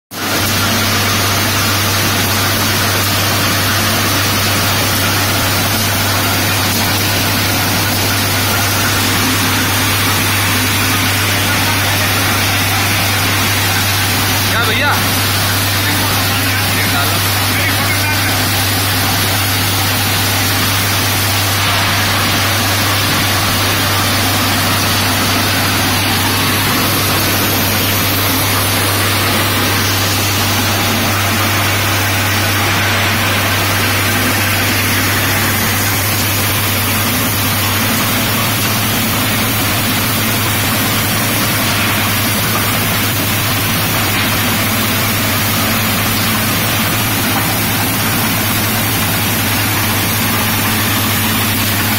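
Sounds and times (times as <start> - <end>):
machinery drone: 0.2 - 51.9
rushing noise: 14.2 - 38.4.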